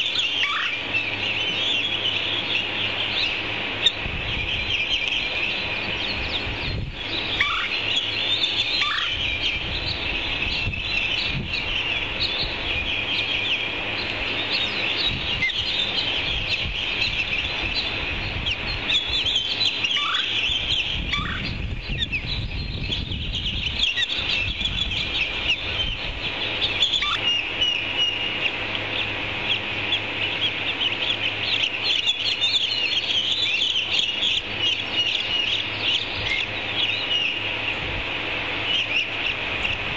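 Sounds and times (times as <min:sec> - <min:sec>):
short falling bird calls: 0:00.0 - 0:22.3
chicks peeping and chirping: 0:00.0 - 0:39.9.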